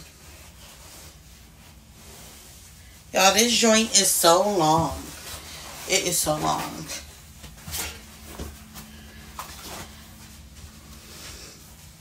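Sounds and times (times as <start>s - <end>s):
fabric rustling: 0.0s - 12.0s
low steady hum: 0.0s - 12.0s.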